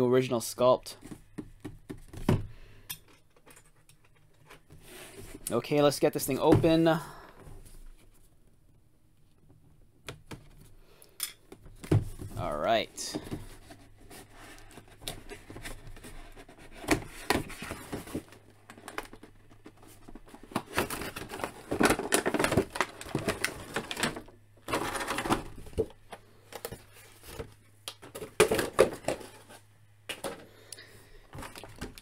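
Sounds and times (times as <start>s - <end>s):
plastic crinkling: 18.3s - 26.0s.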